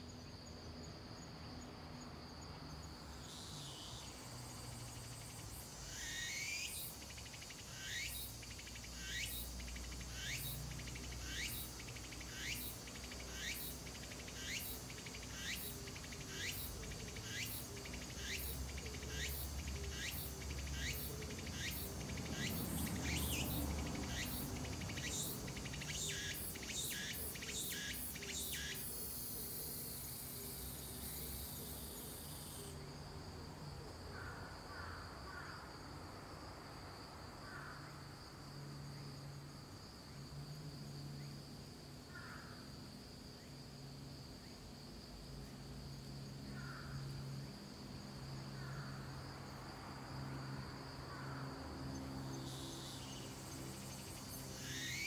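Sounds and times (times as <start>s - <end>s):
insect high trill: 3.1s - 32.8s, 50.0s - 55.0s
insect buzzy rising sweeps: 3.2s - 32.8s, 43.0s - 55.0s.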